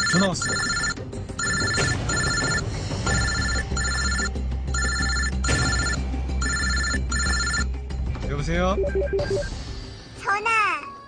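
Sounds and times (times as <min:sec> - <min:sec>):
mobile phone ringing: 0:00.0 - 0:07.7.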